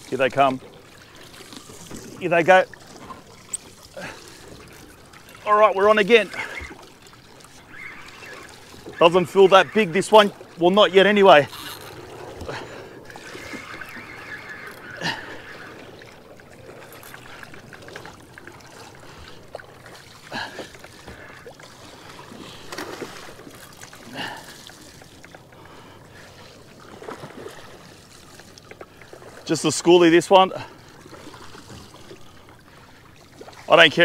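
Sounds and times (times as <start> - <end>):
water lapping against boat hull: 0.0 - 34.0
water splashes: 0.0 - 34.0.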